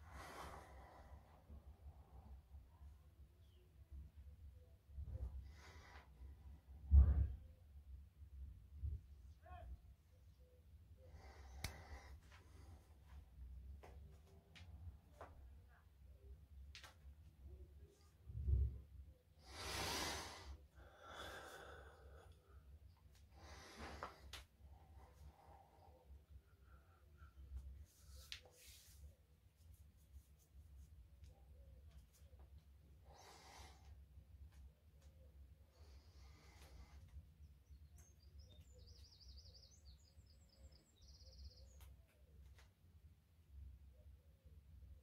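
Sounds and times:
low room hum: 0.0 - 45.0
man breathing hard: 19.4 - 22.6
songbird chirping and trilling: 37.6 - 42.0.

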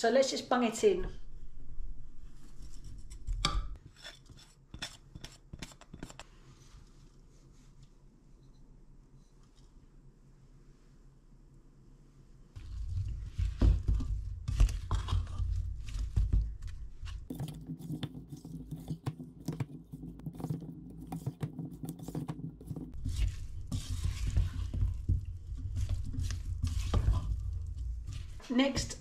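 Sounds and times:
spatula stirring potatoes in a pan: 12.6 - 28.9.

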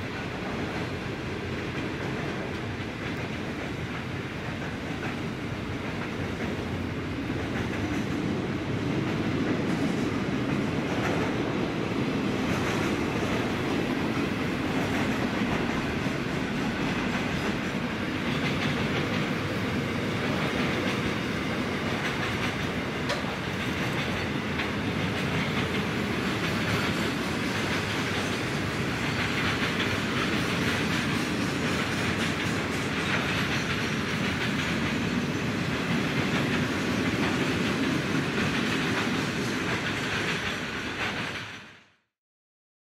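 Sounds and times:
wheels clattering over rail joints: 12.4 - 41.5.

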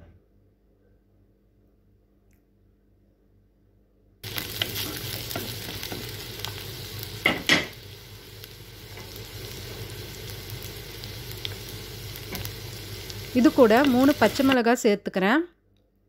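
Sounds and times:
onions sizzling in a pan: 4.2 - 14.8.

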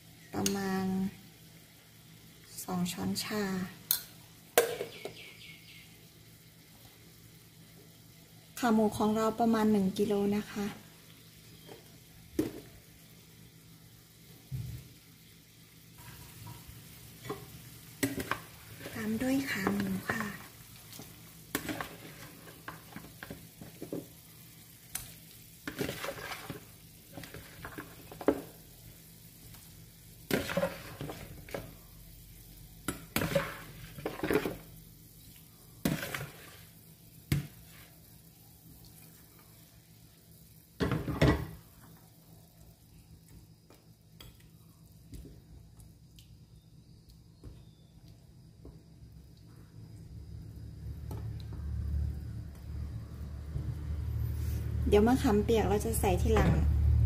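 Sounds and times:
spatula knocking and scraping bowl: 32.9 - 34.6, 35.8 - 36.5.

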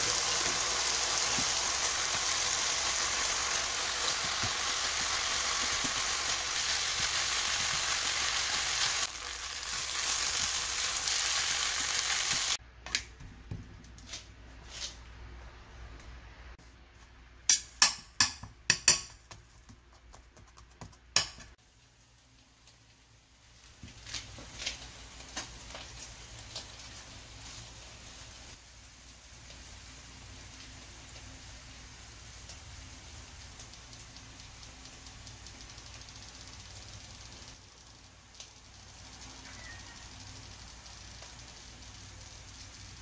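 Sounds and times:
rice sizzling in a frying pan: 0.0 - 12.6, 21.2 - 43.0
metal tongs tapping pan: 17.5 - 19.3, 21.2 - 21.6.

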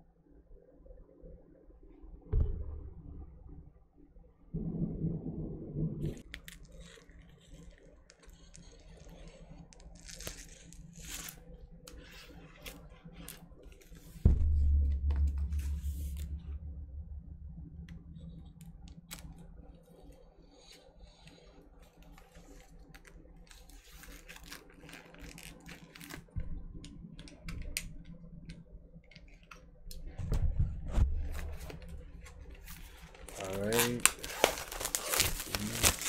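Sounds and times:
low rumble: 2.1 - 6.6, 13.6 - 20.3, 29.8 - 33.4
box cutter scratching shrink wrap: 33.3 - 36.0.

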